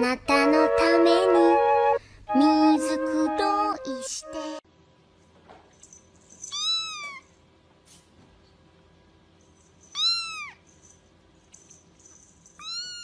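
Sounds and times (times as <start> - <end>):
cat meowing: 6.5 - 7.3, 10.0 - 10.6, 12.6 - 13.0.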